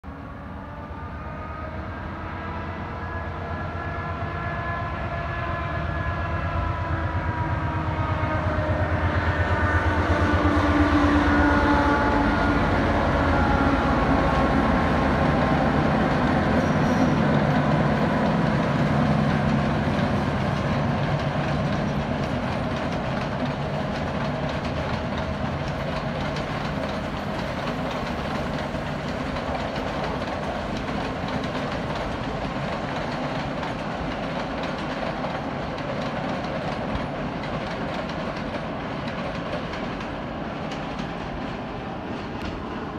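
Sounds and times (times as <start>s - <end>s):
diesel train engine: 0.1s - 42.9s
carriages running on rails: 2.4s - 42.9s.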